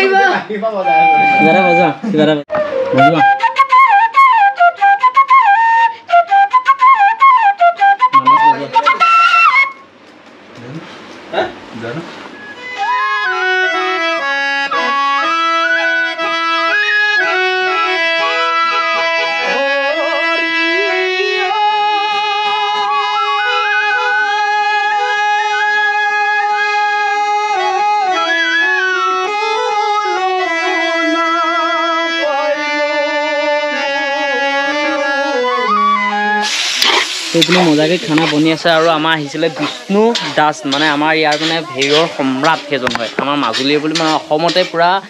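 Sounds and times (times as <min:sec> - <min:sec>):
harmonium: 0:00.0 - 0:02.4, 0:11.8 - 0:36.4
bamboo flutes: 0:00.8 - 0:09.9, 0:12.3 - 0:39.0
man singing: 0:19.4 - 0:22.5, 0:30.5 - 0:35.7.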